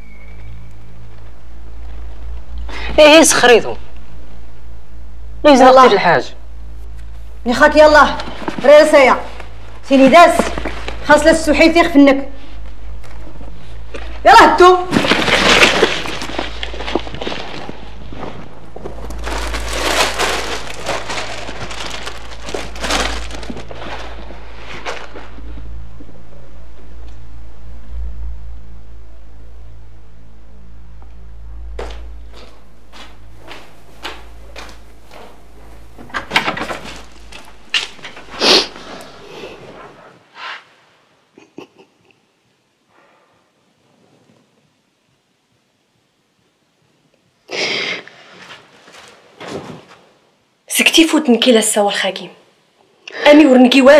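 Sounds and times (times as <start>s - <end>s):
steady low hum: 0.0s - 40.3s
people scuffing and rustling: 14.9s - 26.1s, 31.8s - 40.1s, 48.3s - 50.2s
footsteps on hard floor: 31.8s - 38.3s.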